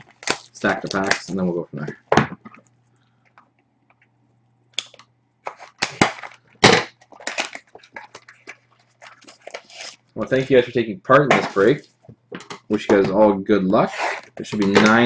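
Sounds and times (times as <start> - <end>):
faint steady hum: 0.0 - 15.0
plastic shrink-wrap crinkling: 4.8 - 10.7.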